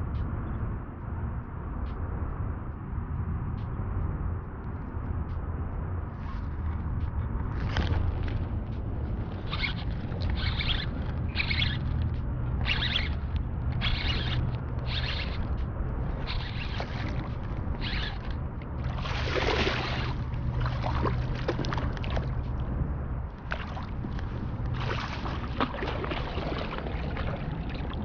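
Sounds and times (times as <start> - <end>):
fishing reel cranking: 7.6 - 22.4
fish splashing at the surface: 18.8 - 22.4, 24.7 - 28.0.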